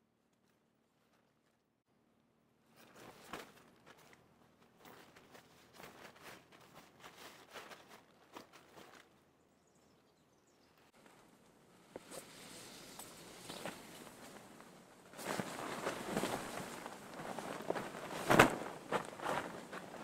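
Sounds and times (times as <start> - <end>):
footsteps on forest floor: 2.8 - 9.2.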